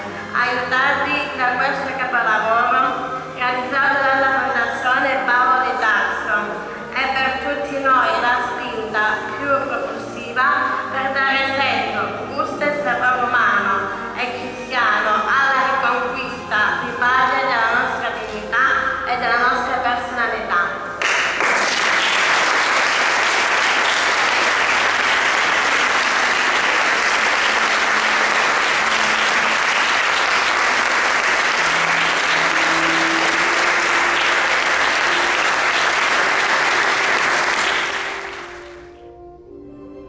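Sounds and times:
soft music notes: 0.0s - 21.0s, 22.9s - 40.0s
audience applauding: 21.0s - 38.9s.

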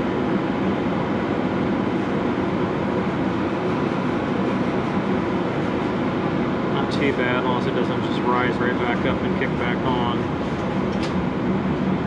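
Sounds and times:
refrigeration machinery whirring: 0.0s - 12.0s.

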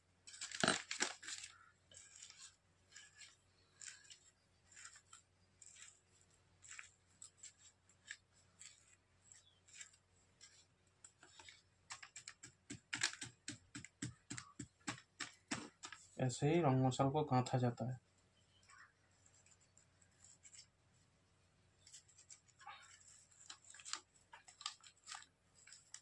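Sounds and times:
metal spoon scraping paper: 0.2s - 14.5s, 21.8s - 26.0s.

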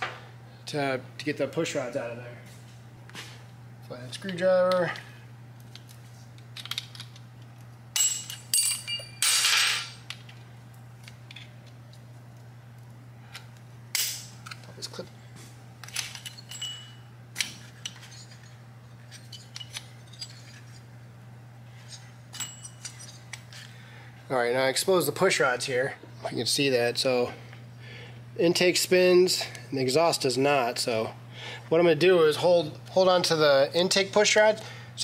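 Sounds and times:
steady low hum: 0.0s - 35.0s
screwdriver clinking on metal: 17.8s - 20.6s.

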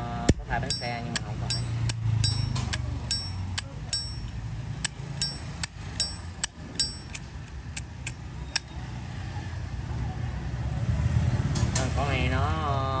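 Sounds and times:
bright metallic ping: 0.3s - 8.1s.

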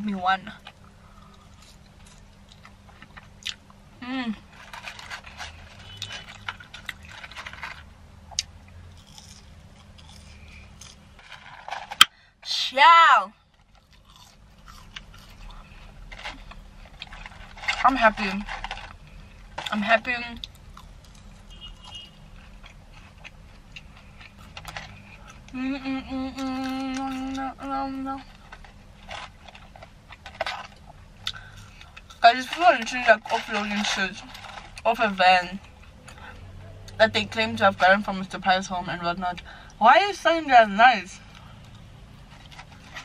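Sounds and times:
chewing: 4.6s - 11.0s, 13.6s - 17.8s, 20.4s - 25.5s
cardboard rustling and scraping: 11.2s - 12.0s, 28.3s - 30.8s.

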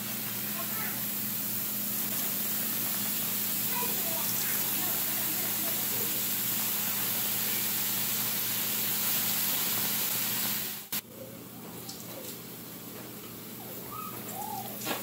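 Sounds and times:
shrimp sizzling on griddle: 0.0s - 11.0s.

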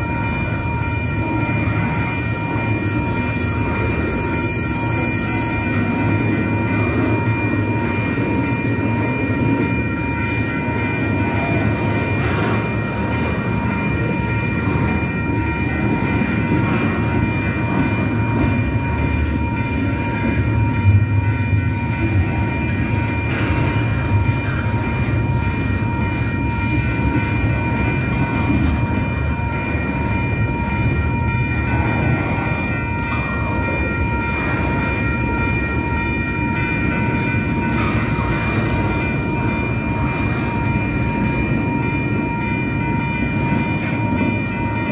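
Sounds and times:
train wheels rumbling on rails: 0.0s - 44.9s.

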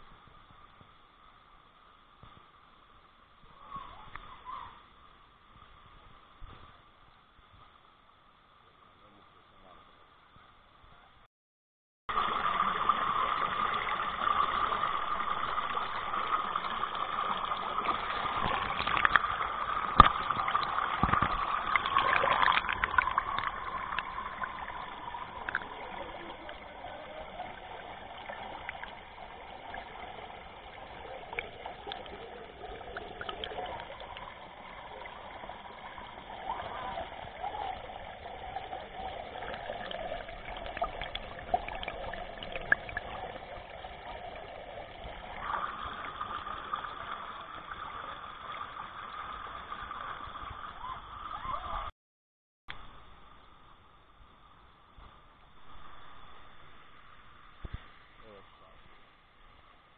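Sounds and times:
water trickling: 12.1s - 51.9s.

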